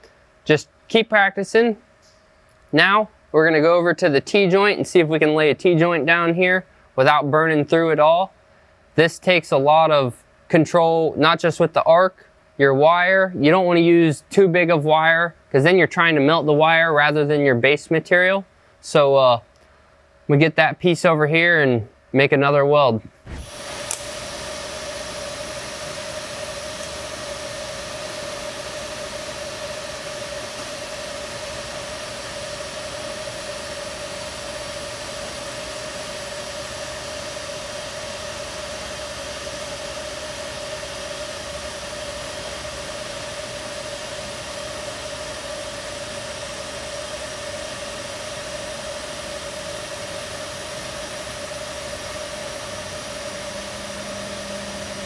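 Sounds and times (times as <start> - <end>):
welding arc hissing: 23.2 - 55.0.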